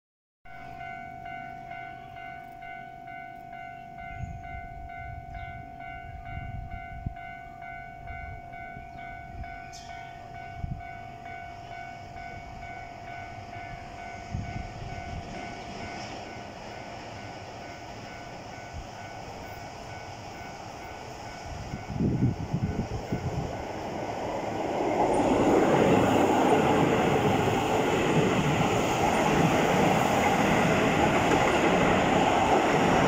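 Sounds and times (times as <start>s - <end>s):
low rumbling gusts: 18.8s - 33.0s.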